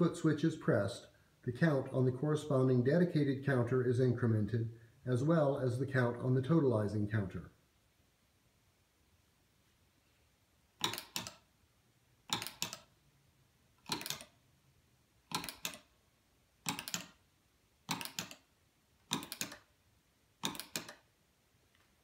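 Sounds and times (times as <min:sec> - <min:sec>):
foot-switch pedal clicks: 0:16.7 - 0:17.2, 0:17.9 - 0:18.4, 0:19.1 - 0:19.7, 0:20.4 - 0:21.0.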